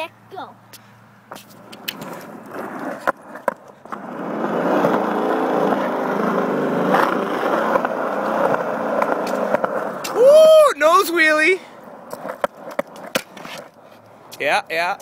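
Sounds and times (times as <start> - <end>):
scooter wheels rolling on concrete: 0.7 - 15.0
scooter clacks: 1.3 - 10.2.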